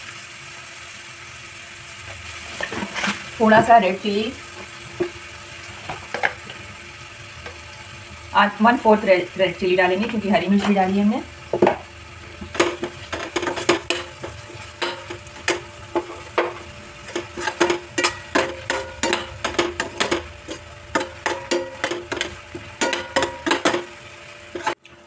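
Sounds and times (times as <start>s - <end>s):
vegetables sizzling in hot oil: 0.0s - 25.0s
metal spoon scraping steel pan: 12.5s - 23.9s, 24.5s - 24.8s.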